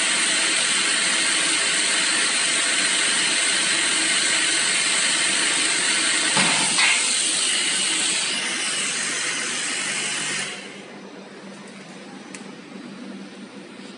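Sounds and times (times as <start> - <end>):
pressurized water hissing: 0.0 - 10.7.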